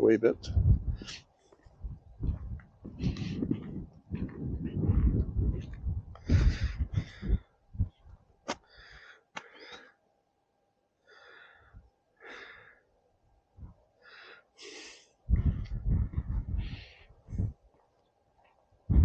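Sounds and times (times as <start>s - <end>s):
wind buffeting microphone: 0.4s - 8.2s, 15.3s - 17.7s
breathy hisses: 14.0s - 15.2s.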